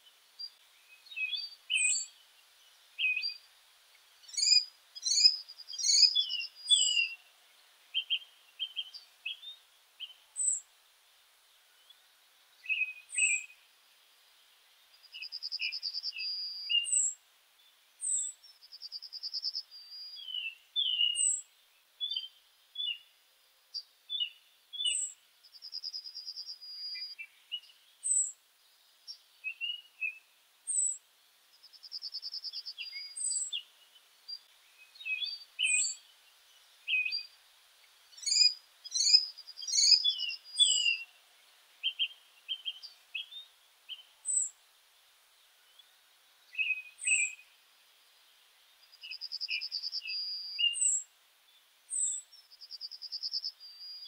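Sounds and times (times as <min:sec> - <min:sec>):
birds chirping: 0:00.0 - 0:10.6, 0:31.7 - 0:44.6, 0:45.6 - 0:47.6
bird trill: 0:04.3 - 0:07.2, 0:18.0 - 0:21.4, 0:34.9 - 0:36.0, 0:38.2 - 0:41.1, 0:41.8 - 0:44.5, 0:46.6 - 0:47.4, 0:49.0 - 0:51.0.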